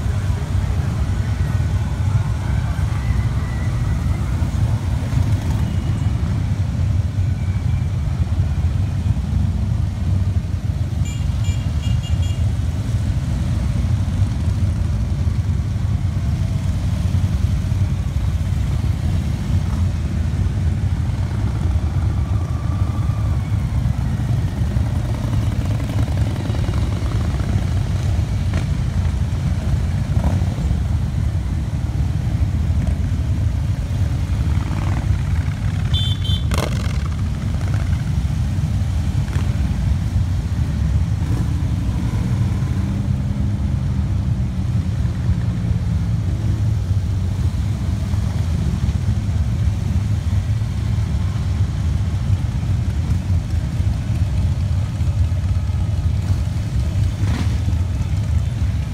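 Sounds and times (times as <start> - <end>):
motorcycles riding past: 0.0 - 58.9.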